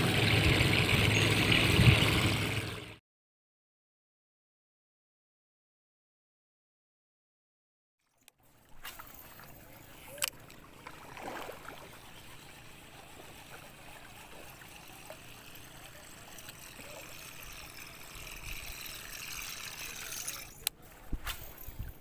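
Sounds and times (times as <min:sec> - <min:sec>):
water lapping against boat hull: 0:08.4 - 0:22.0.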